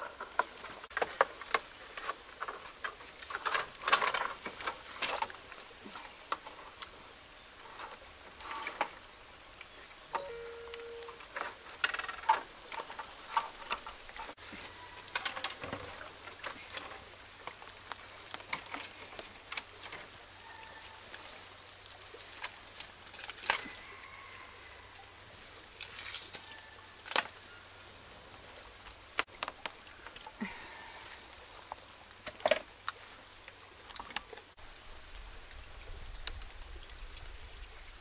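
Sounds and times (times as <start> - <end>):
firewood clicking and knocking: 0.0 - 7.0, 11.2 - 14.4, 28.8 - 30.6, 31.5 - 33.0.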